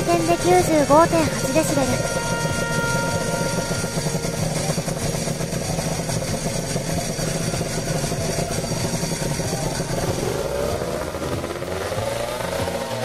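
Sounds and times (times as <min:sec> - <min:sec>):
two-stroke motorcycle engine revving: 0:00.0 - 0:13.0.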